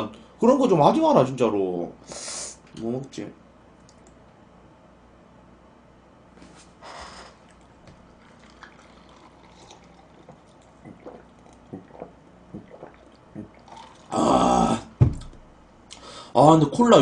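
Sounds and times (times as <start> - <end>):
faint liquid sounds: 7.2 - 14.7
gulping swallows: 7.4 - 14.9.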